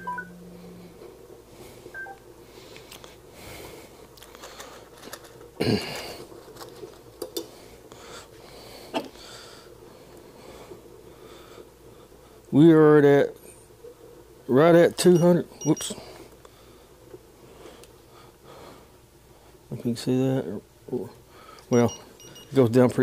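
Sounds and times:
faint steady hum: 0:00.0 - 0:23.0
short electronic beeps: 0:15.2 - 0:16.0, 0:21.7 - 0:22.6.

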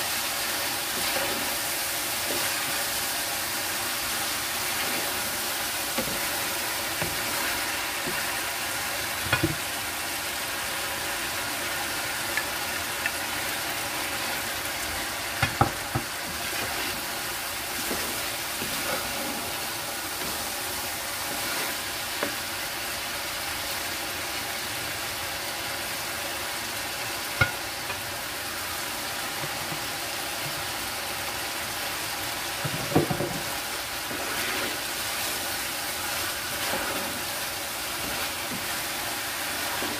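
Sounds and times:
food sizzling in a pan: 0:00.0 - 0:39.9
wooden spoon stirring: 0:00.1 - 0:08.5, 0:15.6 - 0:22.4, 0:34.1 - 0:39.9.

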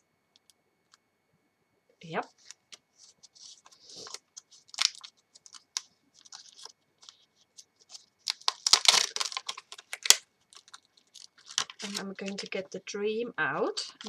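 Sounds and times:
plastic packaging crinkling: 0:02.3 - 0:12.9, 0:13.7 - 0:14.0.

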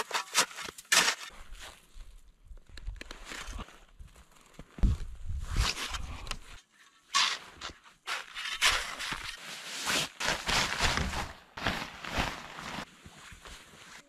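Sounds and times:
crunching in packed snow: 0:08.8 - 0:14.0
canvas tarp rustling: 0:09.4 - 0:14.0.

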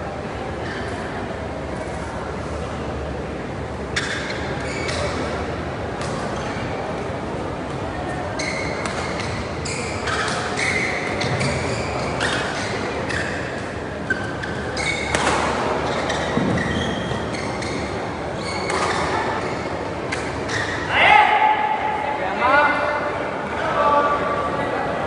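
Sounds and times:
shoes squeaking on court: 0:03.9 - 0:06.8, 0:08.0 - 0:20.9.

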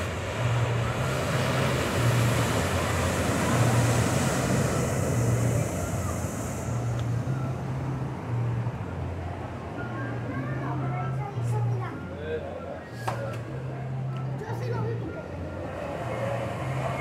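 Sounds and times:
ocean surf breaking on rocks: 0:00.0 - 0:06.9.

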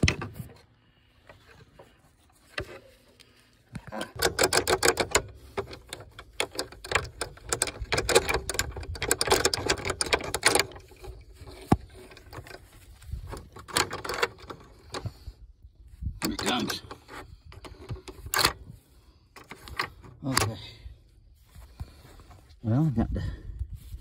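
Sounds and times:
winch metallic clicking: 0:03.8 - 0:15.3.

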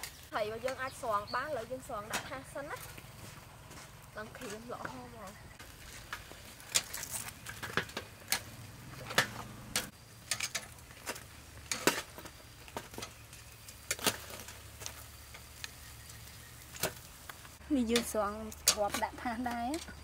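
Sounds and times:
metal tongs clicking on grill grate: 0:06.6 - 0:15.8, 0:17.8 - 0:20.0.

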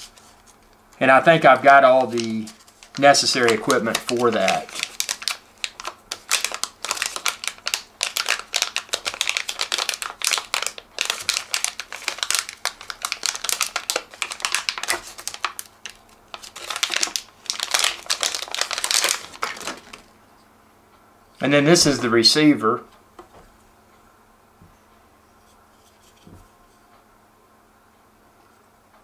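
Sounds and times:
plastic bag crinkling: 0:01.0 - 0:20.1.

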